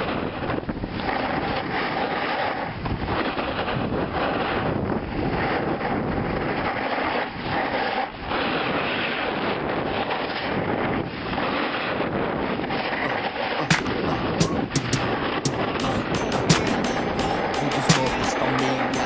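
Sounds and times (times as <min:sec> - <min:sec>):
wind buffeting microphone: 0:00.0 - 0:13.4.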